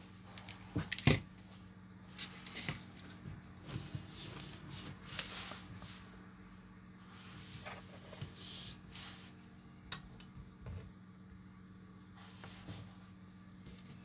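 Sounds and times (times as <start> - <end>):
faint low hum: 0.0 - 14.0
soft rustles and small taps: 2.1 - 6.0.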